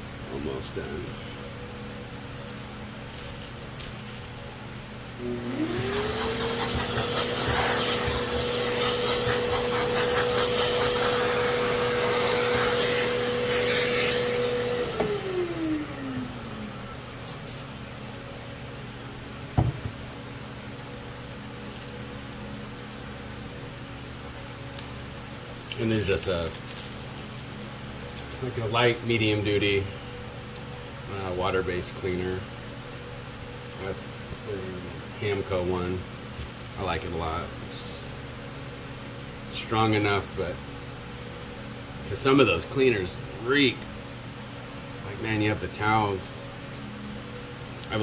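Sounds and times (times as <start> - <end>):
electric motor spinning: 5.2 - 15.6.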